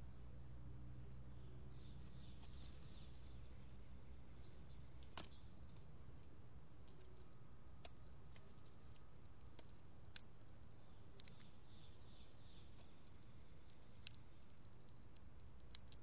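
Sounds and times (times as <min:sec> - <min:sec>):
low steady hum: 0:00.0 - 0:16.0
bird chirp: 0:00.9 - 0:16.0
small clicks and taps: 0:06.8 - 0:11.5, 0:12.7 - 0:16.0.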